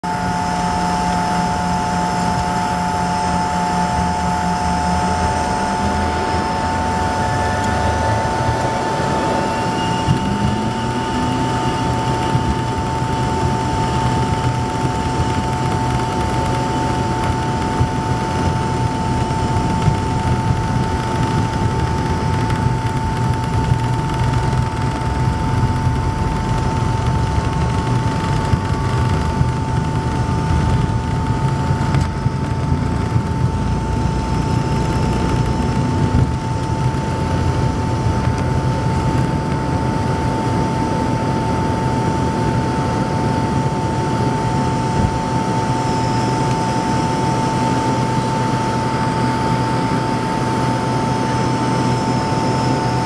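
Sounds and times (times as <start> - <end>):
jet engines whining: 0.0 - 53.0
low rumble: 0.1 - 40.8
brief rising tone: 4.7 - 12.5.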